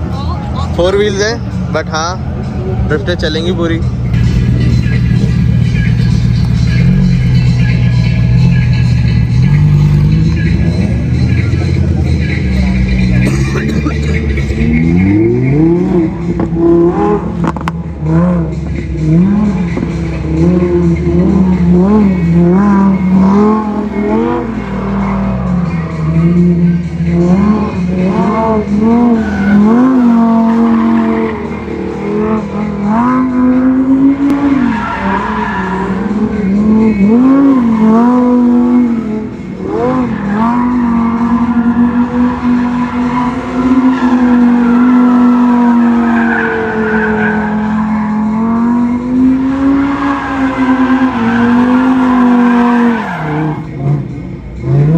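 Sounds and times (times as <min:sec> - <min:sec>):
car engine revving: 0:00.0 - 0:54.9
tyres squealing: 0:28.7 - 0:54.0.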